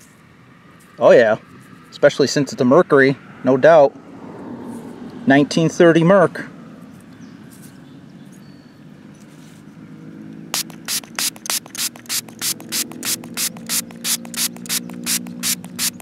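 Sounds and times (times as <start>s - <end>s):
spray bottle squirting: 10.5s - 16.0s.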